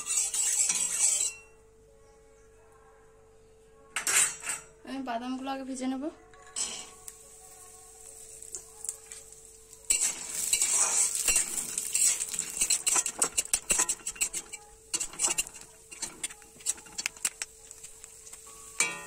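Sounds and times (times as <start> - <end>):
oil sizzling in a pan: 0.0 - 1.3, 6.6 - 19.0
spatula scraping and clicking on pan: 0.0 - 1.4, 9.9 - 19.0.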